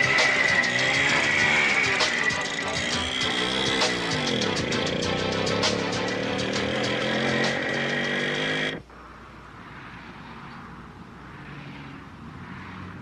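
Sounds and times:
small motorcycle engine: 0.0s - 8.8s.

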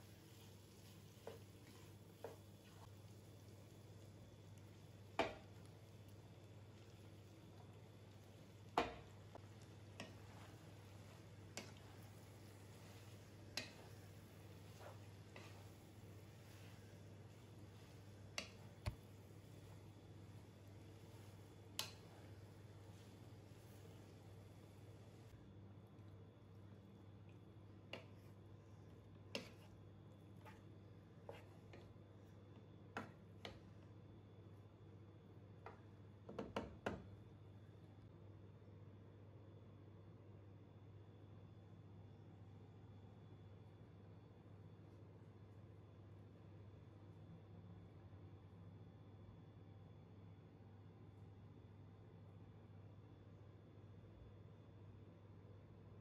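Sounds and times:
low steady hum: 0.0s - 36.3s
spatula knocking against pan: 8.8s - 9.1s.

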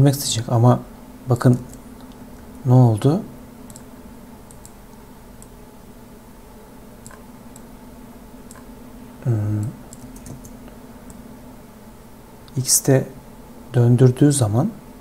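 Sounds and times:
steady low hum: 0.0s - 15.0s
keyboard and mouse clicks: 1.4s - 2.2s, 3.7s - 4.8s, 7.0s - 7.7s, 8.5s - 8.7s, 9.6s - 11.2s.

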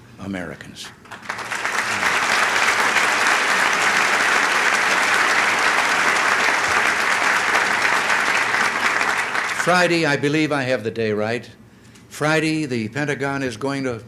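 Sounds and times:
audience applauding: 1.0s - 10.0s.

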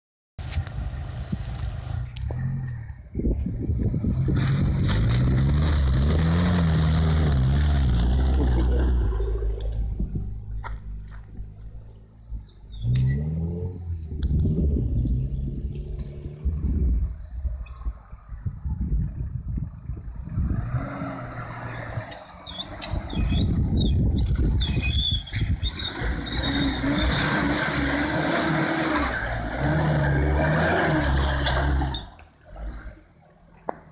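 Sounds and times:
four-wheel drive engine revving: 3.8s - 17.0s, 20.1s - 33.0s
tyres churning through mud and water: 3.9s - 10.1s, 20.5s - 33.5s
engine revving hard: 4.1s - 9.1s, 25.7s - 32.0s.

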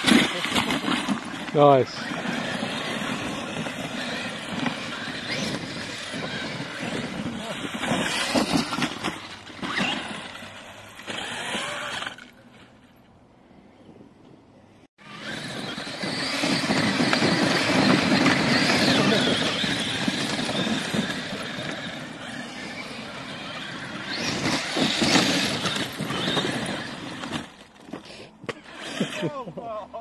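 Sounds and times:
tyres churning sand: 0.0s - 12.5s, 15.0s - 30.0s
rc car motors whining: 0.0s - 12.7s, 15.0s - 29.5s.

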